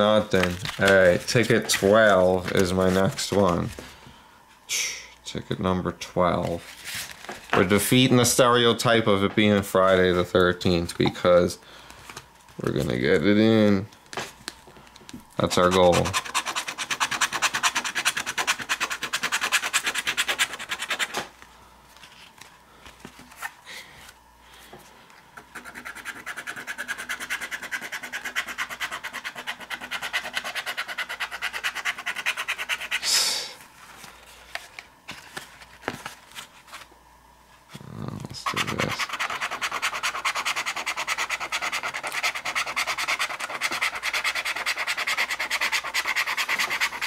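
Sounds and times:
lottery ticket being scratched: 15.4s - 21.2s, 25.5s - 33.1s, 38.4s - 47.0s.

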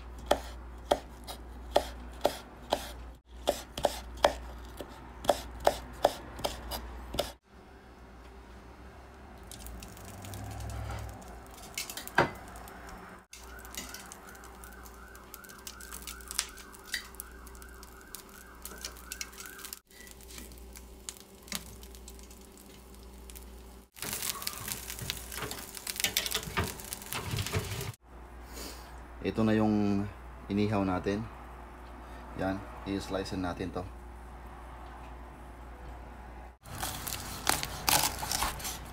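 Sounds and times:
warbling alarm tone: 13.3s - 20.1s.

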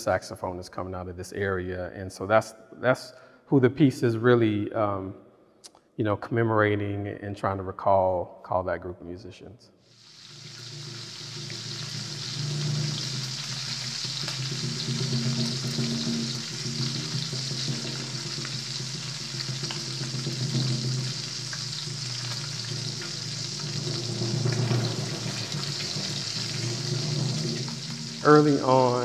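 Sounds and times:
oil sizzling and bubbling: 9.8s - 29.0s.

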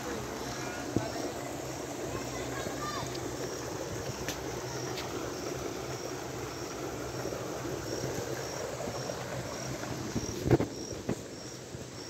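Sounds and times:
insect chirping: 0.0s - 12.0s.

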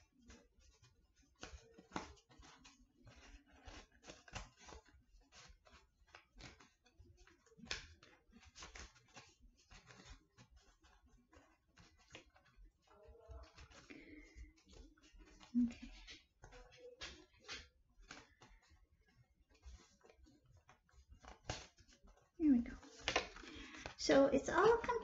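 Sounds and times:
paper rustling and crinkling: 0.0s - 25.0s.

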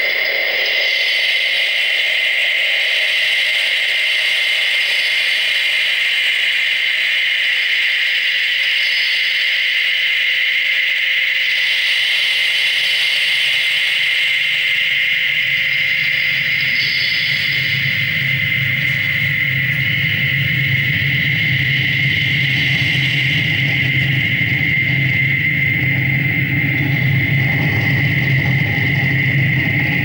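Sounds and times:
low hum: 14.3s - 30.0s.

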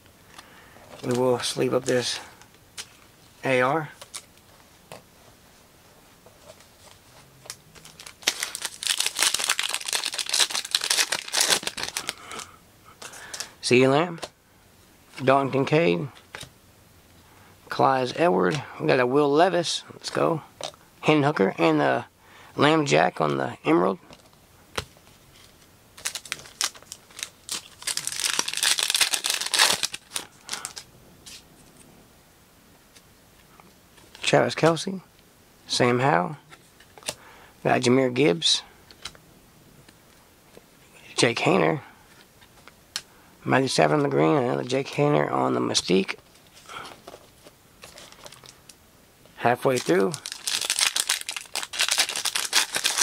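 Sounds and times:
foil wrapper tearing and crinkling: 7.8s - 12.4s, 26.0s - 30.8s, 47.8s - 48.6s, 49.6s - 53.0s.

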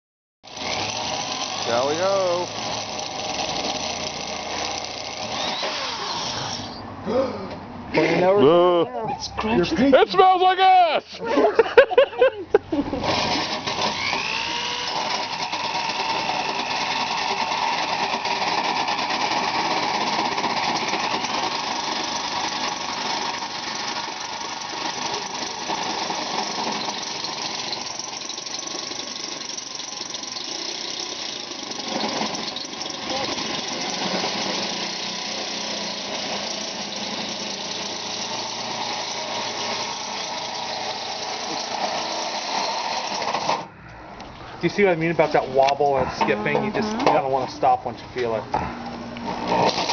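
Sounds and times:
electric drill whining: 0.5s - 6.8s, 13.0s - 43.7s, 49.2s - 49.9s.

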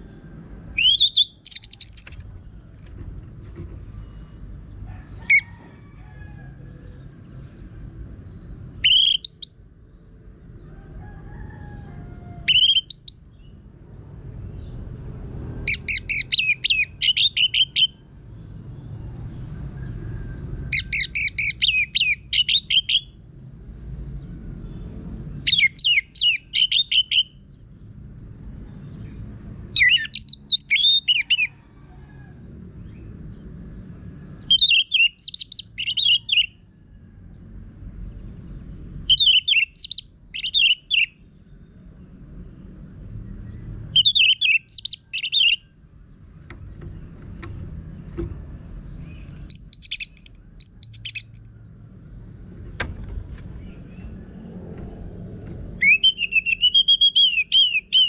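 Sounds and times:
thrush rising calls: 0.7s - 2.5s, 49.1s - 51.6s, 53.6s - 58.0s.

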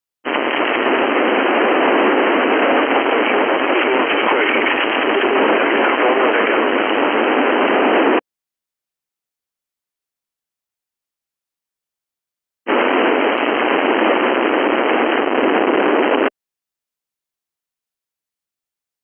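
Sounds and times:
radio static hiss: 0.3s - 8.2s, 12.7s - 16.3s.

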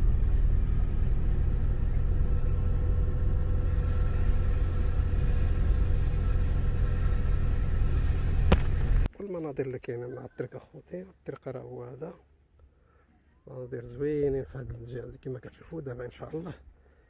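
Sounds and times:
car engine and road rumble: 0.0s - 9.1s
faint steady whine: 0.0s - 9.1s.

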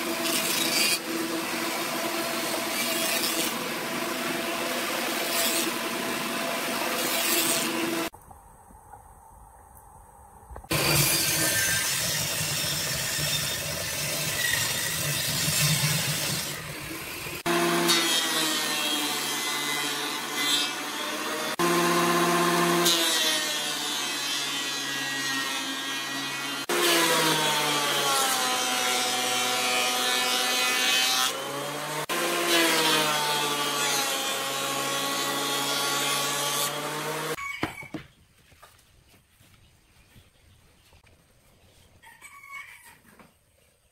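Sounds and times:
table saw ripping wood: 0.0s - 8.1s, 10.7s - 37.4s
thickness planer running: 10.7s - 24.0s.

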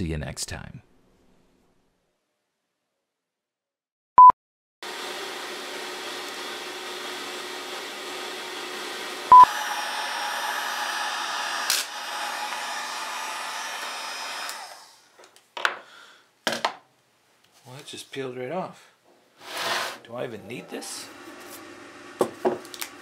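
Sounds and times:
heat gun blowing: 4.9s - 15.1s.

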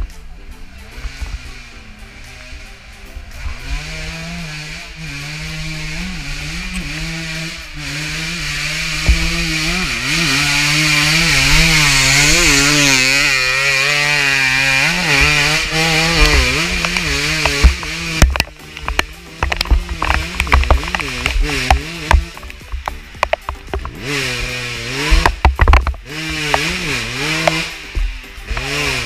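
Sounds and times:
dirt bike engine revving: 0.0s - 29.0s.

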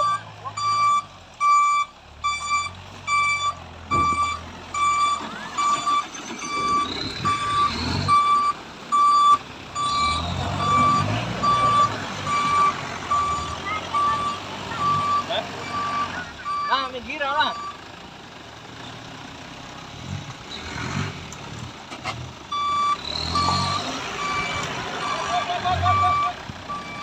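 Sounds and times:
reversing alarm beeping: 0.0s - 16.9s, 17.5s - 17.8s, 22.5s - 27.0s
pickup engine rumble: 0.0s - 27.0s.

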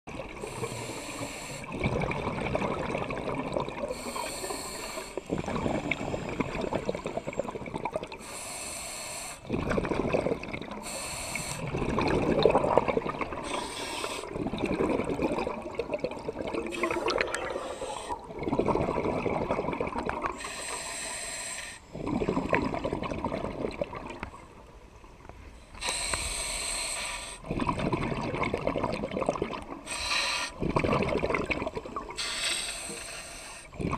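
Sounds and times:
exhaled air bubbling: 0.1s - 25.0s, 25.8s - 33.9s
regulator inhalation hiss: 0.4s - 1.7s, 3.9s - 5.3s, 8.2s - 9.5s, 10.8s - 11.7s, 13.4s - 14.3s, 20.4s - 21.9s, 25.8s - 27.4s, 29.9s - 30.6s, 32.2s - 33.8s.

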